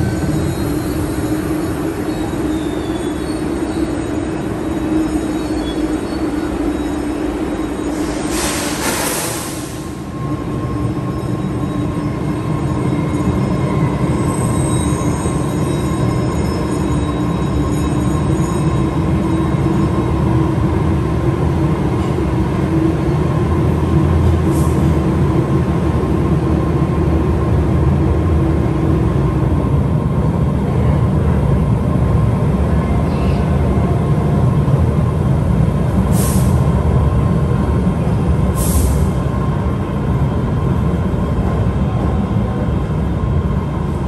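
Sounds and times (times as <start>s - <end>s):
subway train rumble and hum: 0.0s - 44.0s
air brake hisses: 7.9s - 10.1s, 24.5s - 24.9s, 36.1s - 36.7s, 38.5s - 39.2s.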